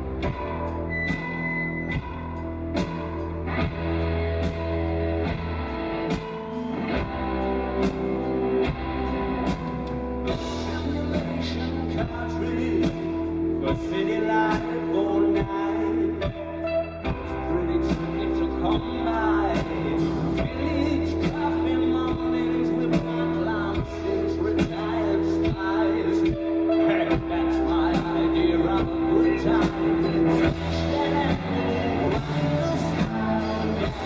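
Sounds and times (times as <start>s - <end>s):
deep bass line: 0.0s - 34.0s
electric guitar: 0.0s - 34.0s
man singing lead vocal: 10.2s - 34.0s.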